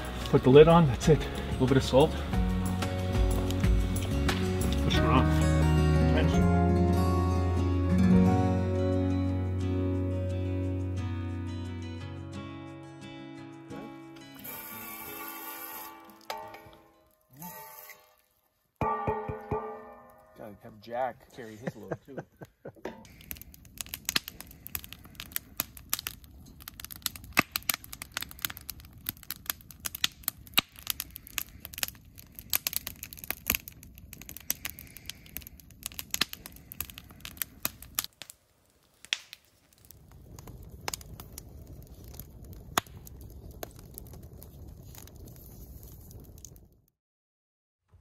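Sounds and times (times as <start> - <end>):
low rush of flames: 0.0 - 8.2, 20.4 - 46.9
campfire crackling and popping: 0.0 - 8.8, 14.3 - 46.9.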